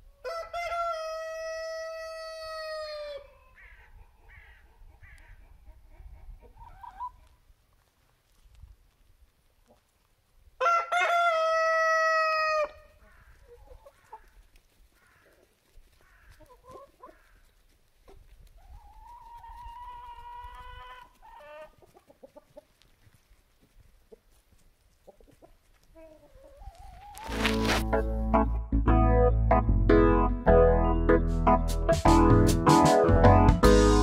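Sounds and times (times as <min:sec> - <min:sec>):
rooster crowing: 0:00.2 - 0:03.3, 0:10.6 - 0:12.8.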